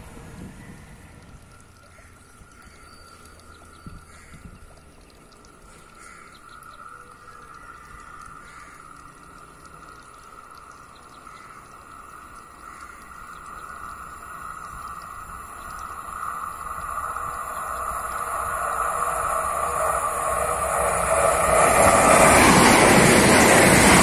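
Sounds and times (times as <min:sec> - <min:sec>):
electric train approaching: 0:07.4 - 0:24.0.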